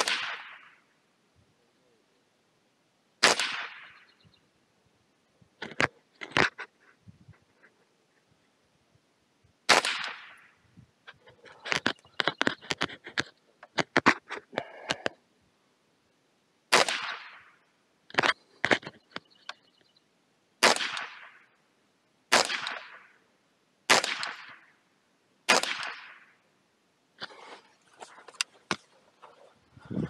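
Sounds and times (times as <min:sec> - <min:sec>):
rifle shots with echo: 0:00.0 - 0:00.9, 0:03.2 - 0:04.2, 0:09.7 - 0:10.6, 0:16.7 - 0:17.6, 0:20.6 - 0:21.5, 0:22.3 - 0:23.2, 0:23.9 - 0:24.8, 0:25.5 - 0:26.4.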